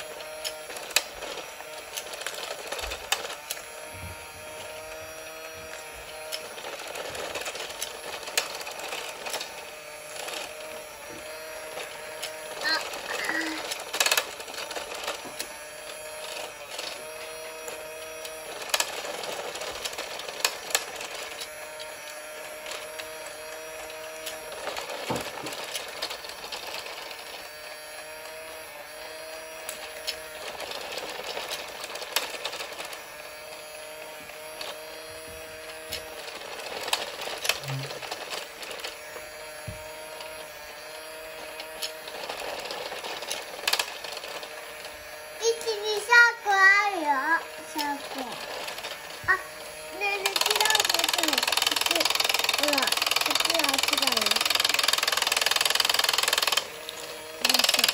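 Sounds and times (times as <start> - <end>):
small toy motor whirring: 0.0 - 57.9.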